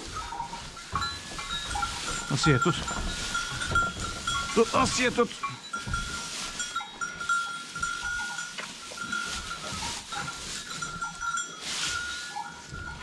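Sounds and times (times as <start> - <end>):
hay rustling: 0.0 - 13.0.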